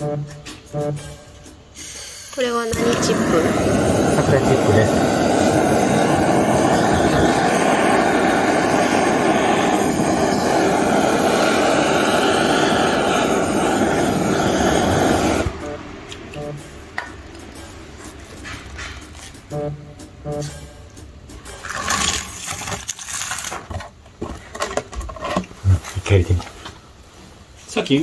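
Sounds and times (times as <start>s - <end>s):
gas torch hissing: 1.7s - 16.2s.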